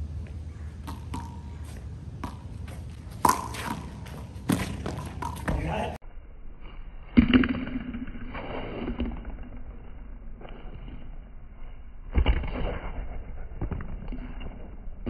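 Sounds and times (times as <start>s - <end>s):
steady low rumble: 0.0s - 8.3s
handball hits: 0.9s - 1.5s, 2.2s - 5.9s.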